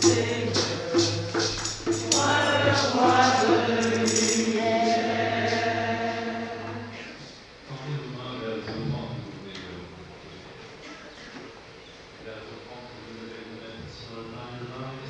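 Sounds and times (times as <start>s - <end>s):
hand percussion strikes: 0.0s - 5.8s
congregation and choir singing hymn: 0.0s - 7.4s.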